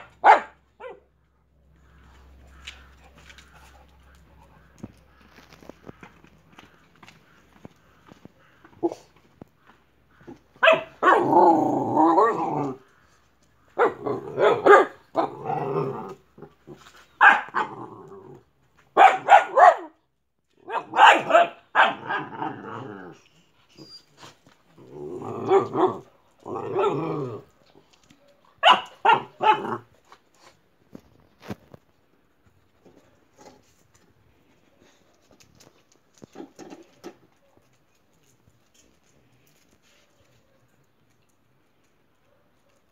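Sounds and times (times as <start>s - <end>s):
dog barking and growling: 0.0s - 1.1s, 8.4s - 9.2s, 10.1s - 13.0s, 13.6s - 24.0s, 24.6s - 30.2s.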